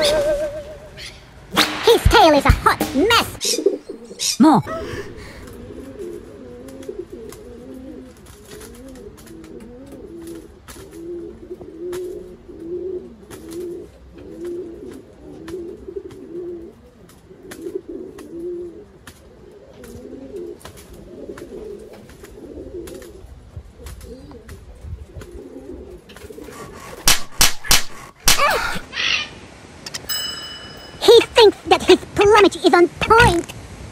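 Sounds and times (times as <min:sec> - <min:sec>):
pigeons cooing: 0:00.0 - 0:29.4
loud sharp sounds: 0:01.4 - 0:03.9.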